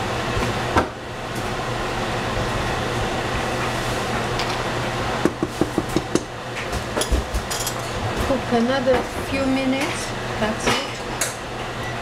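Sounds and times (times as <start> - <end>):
steady whirring with low hum: 0.0 - 12.0.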